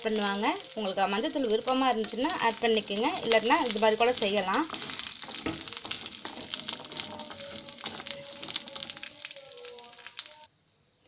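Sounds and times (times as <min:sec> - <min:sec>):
chickpeas sizzling in oil: 0:00.0 - 0:11.0
spoon clicking and scraping pan: 0:00.6 - 0:09.3.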